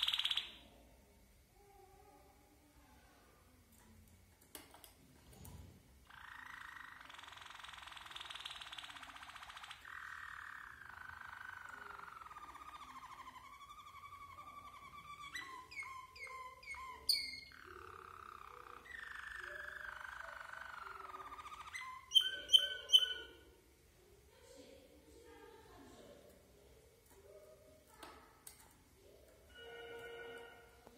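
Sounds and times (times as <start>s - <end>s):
canary singing trills: 0.0s - 0.8s, 6.1s - 23.6s.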